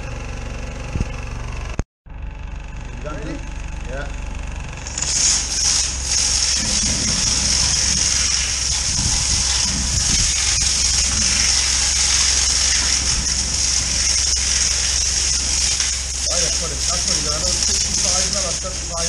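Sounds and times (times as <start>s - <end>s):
low hum: 0.0s - 19.0s
water jet hissing: 4.8s - 19.0s.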